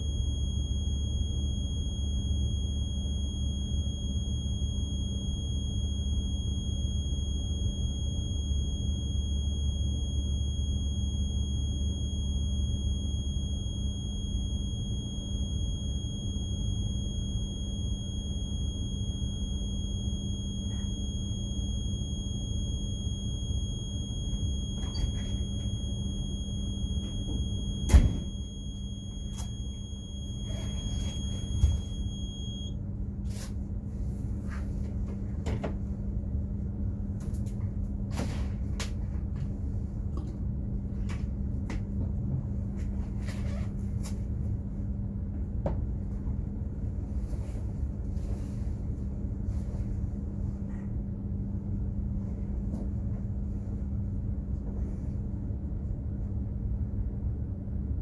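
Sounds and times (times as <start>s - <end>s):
thin high whine: 0.0s - 33.6s
ship machinery rumble and hum: 0.0s - 58.0s.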